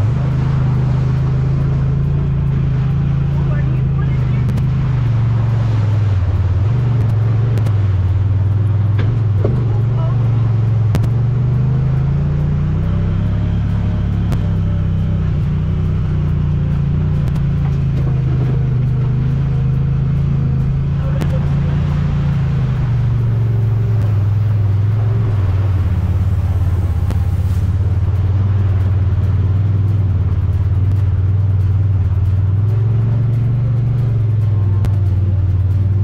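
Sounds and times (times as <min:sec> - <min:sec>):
utility vehicle engine drone: 0:00.0 - 0:36.0.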